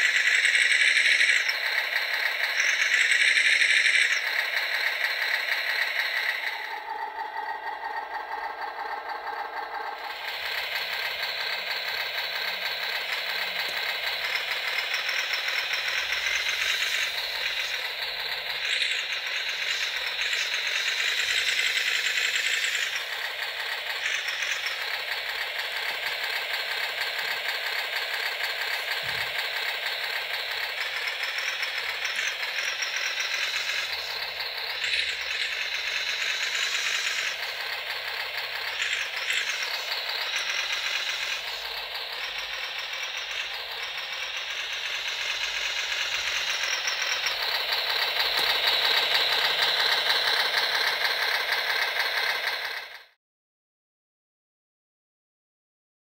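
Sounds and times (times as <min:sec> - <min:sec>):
simulated truck engine from loudspeaker: 0:00.0 - 0:53.2.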